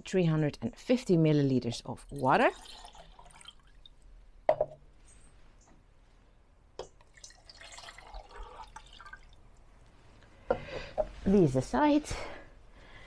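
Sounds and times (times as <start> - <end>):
water pouring into a metal pot: 2.0 - 4.0, 7.0 - 9.5.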